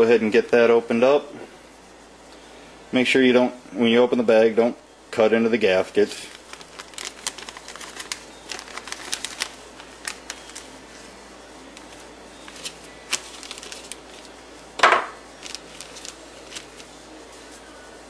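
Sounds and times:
plastic bag rustle: 6.0 - 14.4, 15.3 - 17.8
plastic bag clicks and crinkles: 6.2 - 10.7, 11.7 - 14.3, 15.4 - 16.9.

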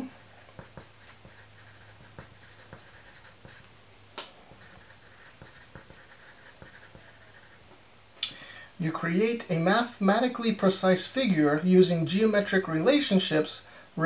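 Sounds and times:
pencil scratching on paper: 0.0 - 3.7, 4.4 - 7.7
pencil tap: 0.5 - 1.4, 2.0 - 4.6.

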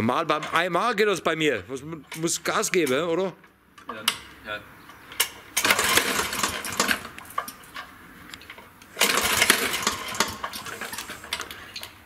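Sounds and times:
lawn mower recoil starter cranking: 5.1 - 12.0.

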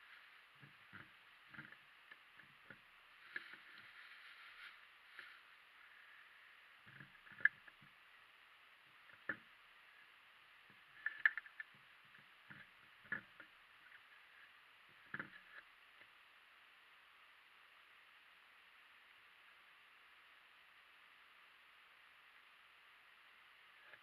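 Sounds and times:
soft knocks and clicks of wheels: 0.0 - 5.5, 6.8 - 8.0, 9.0 - 9.6, 10.6 - 14.2, 14.9 - 16.2
steady hiss: 0.0 - 24.0.

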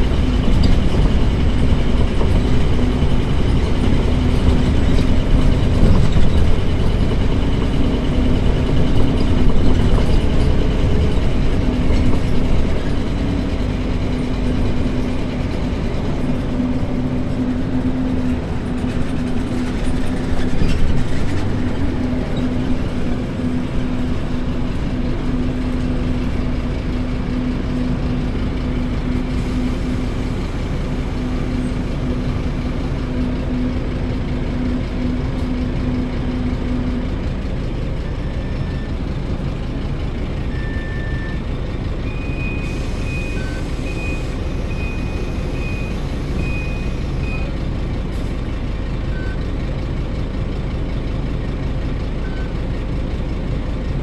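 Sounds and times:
bus diesel engine running: 0.0 - 54.0.

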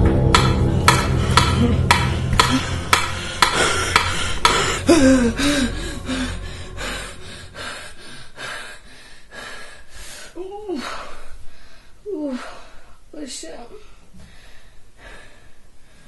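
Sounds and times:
low drone: 0.0 - 10.7
wavering moan: 0.5 - 9.0.

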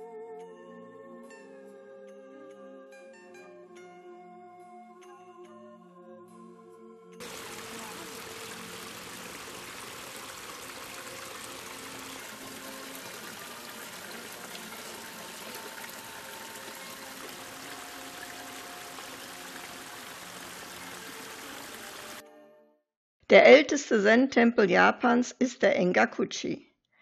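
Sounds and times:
stream trickling over rocks: 7.2 - 22.2.

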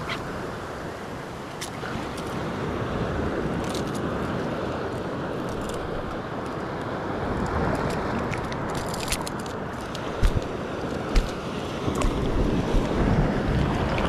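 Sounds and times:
wind buffeting microphone: 7.2 - 14.0
surf rushing: 9.8 - 14.0
low thumps: 10.2 - 10.5, 11.1 - 11.4.

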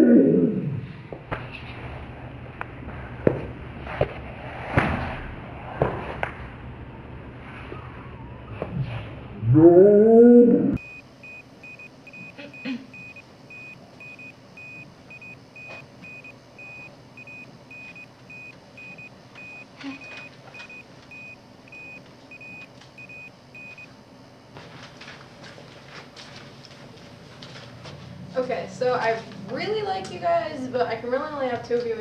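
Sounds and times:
heart monitor beeps: 10.8 - 23.9.

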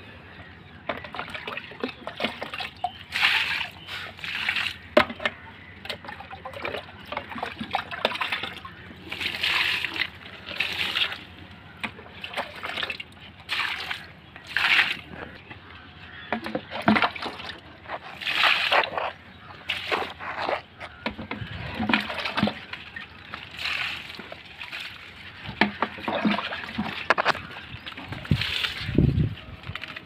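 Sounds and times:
water splashing onto soil: 1.2 - 5.2, 21.7 - 29.1.

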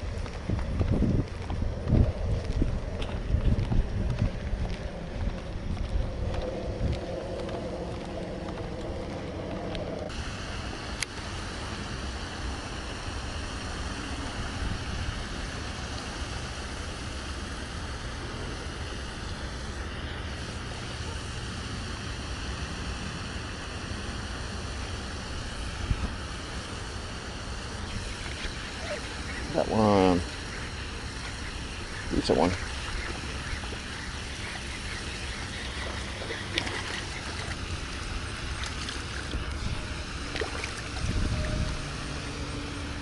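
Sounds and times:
wind rumbling on microphone: 0.0 - 10.2, 25.3 - 26.3, 30.3 - 43.0
steady high hiss: 0.0 - 43.0.

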